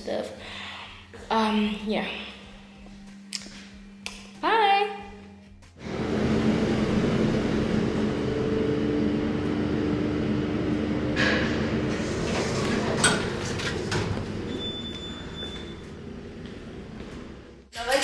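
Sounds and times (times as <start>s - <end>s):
lift car humming: 5.8s - 17.7s
sliding doors opening: 5.8s - 17.7s
door mechanism clicks and clunk: 11.1s - 14.6s.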